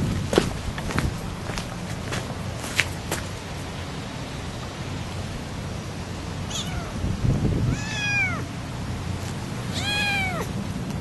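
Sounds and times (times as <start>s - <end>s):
kitten meowing: 6.5s - 7.0s, 7.6s - 8.5s, 9.7s - 10.5s.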